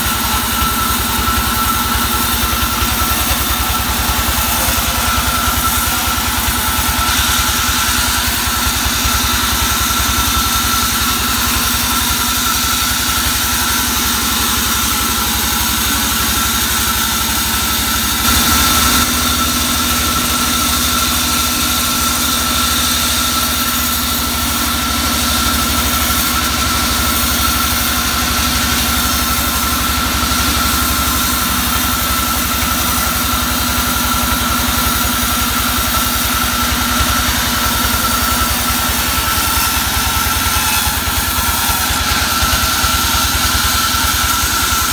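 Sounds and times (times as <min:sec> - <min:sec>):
steady high tone: 0:00.0 - 0:10.4
band saw engine running: 0:00.0 - 0:44.9.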